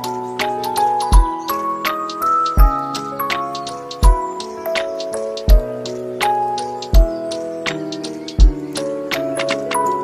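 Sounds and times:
held melodic notes: 0:00.0 - 0:10.0
light ticking percussion: 0:00.0 - 0:10.0
deep bass beat: 0:01.1 - 0:01.4, 0:03.9 - 0:04.2, 0:05.4 - 0:05.7, 0:06.8 - 0:07.2, 0:08.4 - 0:08.6.

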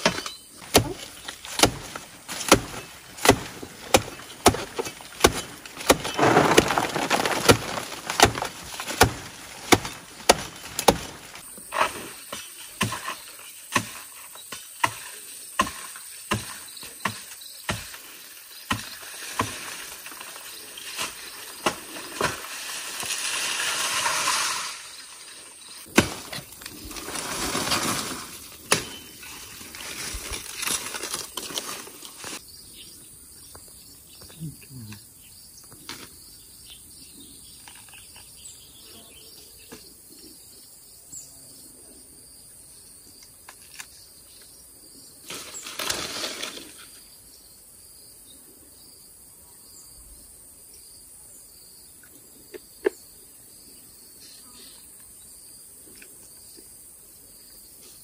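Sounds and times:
rustling noise: 0:05.5 - 0:11.9, 0:26.2 - 0:32.4.

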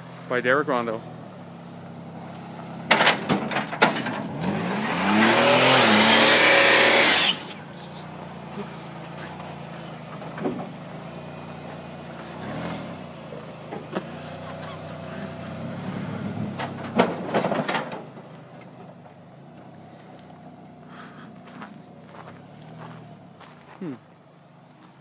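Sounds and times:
car engine revving: 0:01.2 - 0:17.2.

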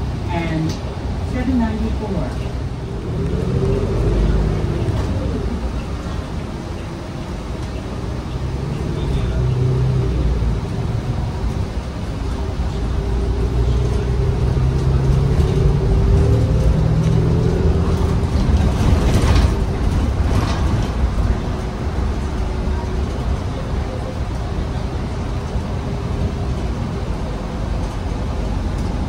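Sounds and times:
bus engine drone: 0:00.0 - 0:29.0.

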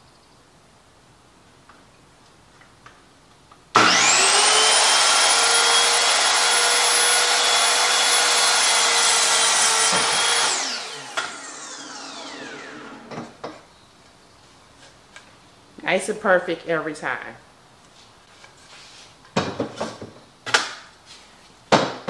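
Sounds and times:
miter saw cutting wood: 0:03.8 - 0:13.2.

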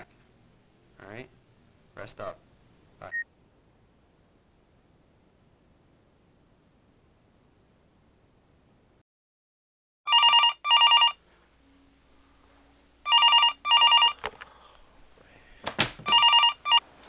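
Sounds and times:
telephone ringing: 0:10.1 - 0:11.2, 0:13.0 - 0:14.3, 0:16.0 - 0:16.8
rustling noise: 0:16.8 - 0:17.0.

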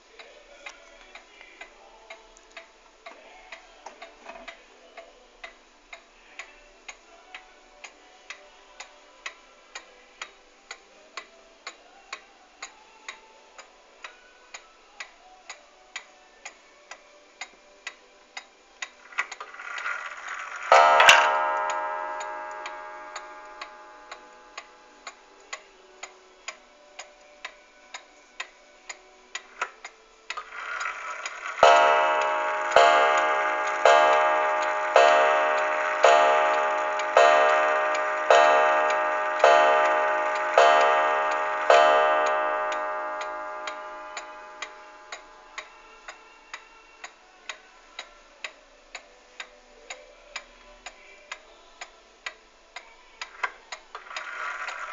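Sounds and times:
clock ticking: 0:19.2 - 0:25.6, 0:30.3 - 0:45.7
clock gong striking: 0:20.7 - 0:24.8, 0:31.4 - 0:45.5.

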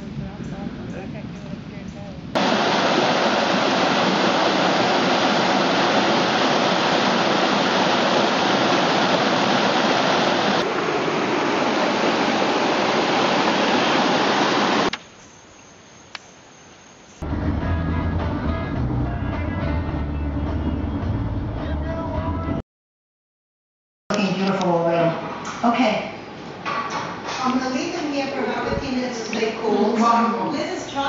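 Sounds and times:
water rushing over rocks: 0:02.4 - 0:15.0.

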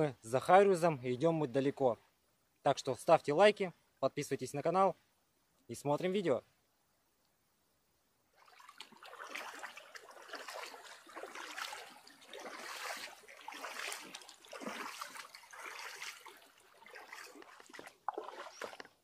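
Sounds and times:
boots wading through river: 0:08.3 - 0:19.0
fast river water: 0:08.4 - 0:19.0.

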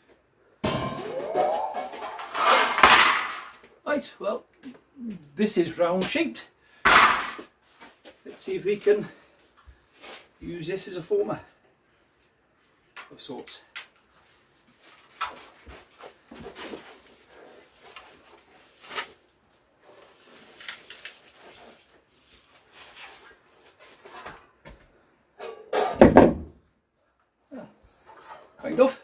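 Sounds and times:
sheet steel scraping: 0:00.6 - 0:03.6.

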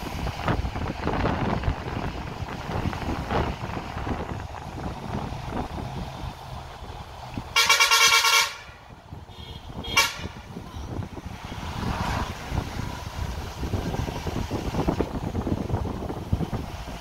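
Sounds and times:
bus rumble and wind noise: 0:00.0 - 0:17.0
bus horn honking: 0:07.4 - 0:11.0.

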